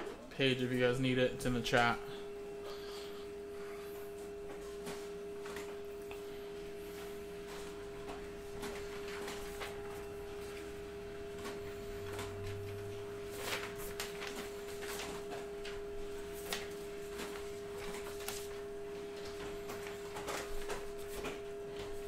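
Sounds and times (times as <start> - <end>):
steady electronic whine: 0.0 - 22.0
paper rustling: 7.4 - 22.0.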